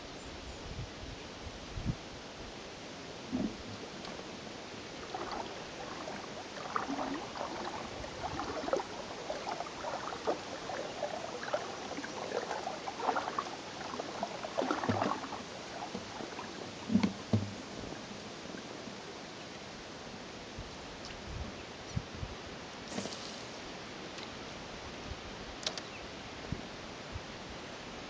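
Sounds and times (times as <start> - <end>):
water lapping against boat: 3.2 - 19.2
dull knocks: 16.9 - 17.6.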